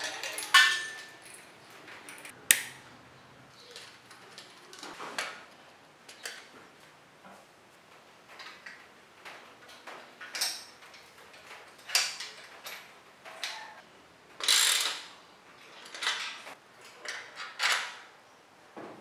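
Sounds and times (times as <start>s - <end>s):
hand tools tightening bolts: 14.4s - 18.0s.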